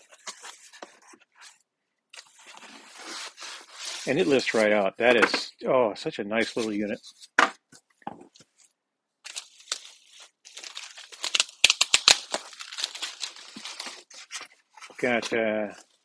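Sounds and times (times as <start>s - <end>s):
plastic bag crinkling: 9.3s - 14.3s.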